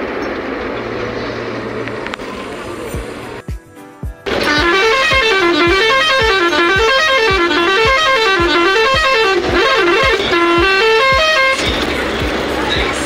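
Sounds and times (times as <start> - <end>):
music with thumping beat: 3.0 - 13.0
horn-like lead melody: 4.3 - 11.8.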